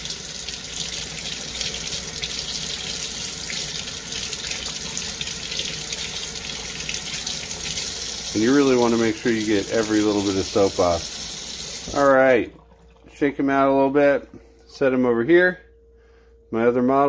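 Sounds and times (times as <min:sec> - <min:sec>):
tap water running: 0:00.0 - 0:13.1.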